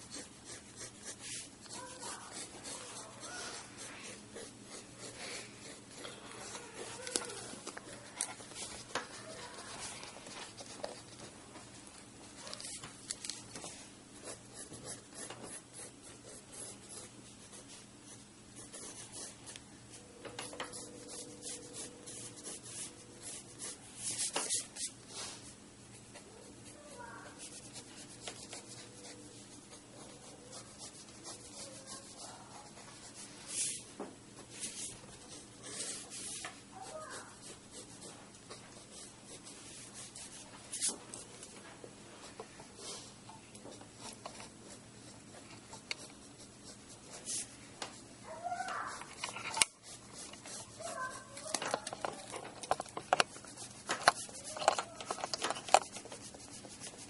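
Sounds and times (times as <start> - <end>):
pencil sketching on paper: 0.0 - 11.3, 14.2 - 19.6, 20.5 - 24.9, 26.6 - 33.8, 34.4 - 40.9, 44.0 - 47.5, 49.7 - 51.5, 55.8 - 57.0.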